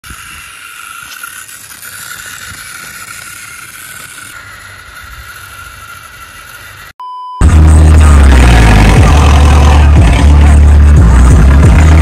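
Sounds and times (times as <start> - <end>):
toy tractor motor whining: 0.0 - 7.0.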